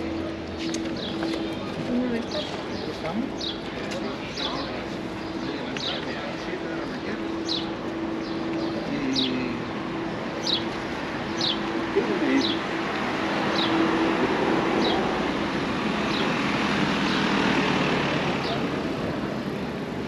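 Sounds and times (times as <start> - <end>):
passing cars: 0.0 - 20.0
bird chirping: 11.3 - 12.7.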